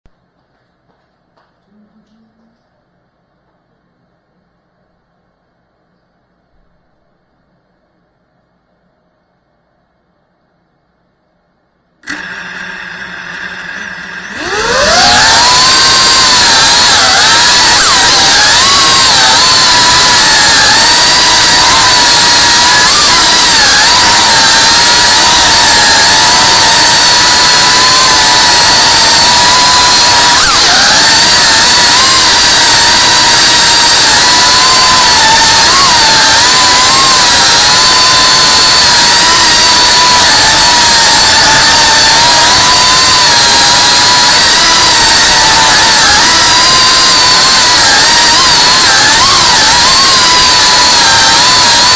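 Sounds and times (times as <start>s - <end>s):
drone motors humming and whining: 12.1s - 51.9s.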